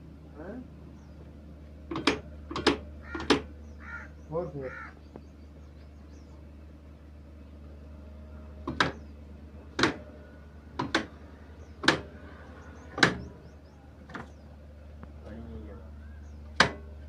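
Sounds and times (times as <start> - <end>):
diesel engine exhaust beats: 0.0 - 17.0
steady low hum: 0.0 - 17.0.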